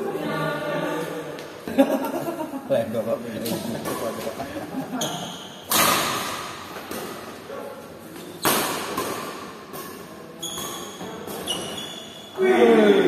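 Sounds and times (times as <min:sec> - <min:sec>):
rackets hitting shuttlecock: 0:05.5 - 0:07.4, 0:08.1 - 0:11.8
shoes squeaking on court: 0:07.8 - 0:12.4.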